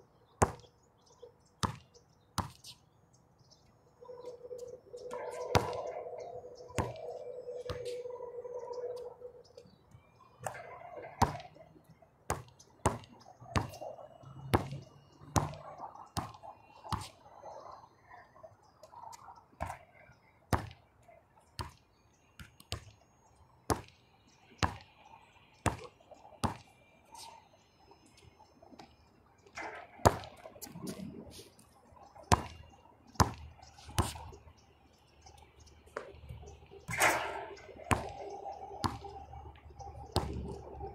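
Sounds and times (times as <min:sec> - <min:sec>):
basketball bouncing on hard court: 0:05.5 - 0:05.9, 0:06.8 - 0:07.0, 0:12.3 - 0:13.8, 0:15.4 - 0:15.6, 0:32.3 - 0:32.6, 0:33.2 - 0:33.4, 0:37.9 - 0:38.2, 0:38.8 - 0:39.1, 0:40.2 - 0:40.4.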